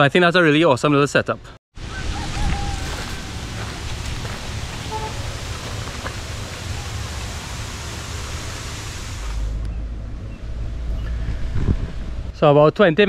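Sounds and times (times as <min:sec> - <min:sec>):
low wind rumble: 0:01.8 - 0:12.7
steady hiss: 0:02.9 - 0:09.6.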